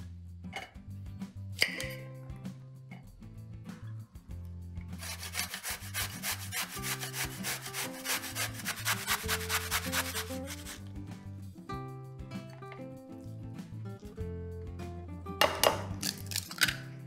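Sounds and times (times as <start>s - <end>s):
zucchini grated on metal grater: 5.0s - 10.8s.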